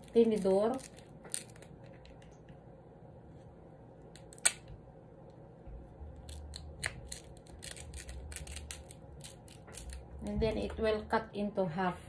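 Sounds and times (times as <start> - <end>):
crab shell cracking and clicking: 0.0 - 2.6, 4.0 - 5.4, 6.2 - 10.1.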